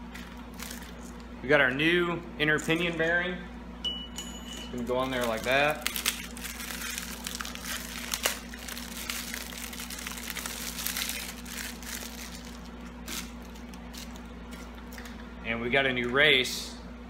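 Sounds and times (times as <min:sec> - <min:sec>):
packaging crinkling: 0:00.0 - 0:01.3, 0:04.8 - 0:15.2
steady low hum: 0:00.0 - 0:17.0.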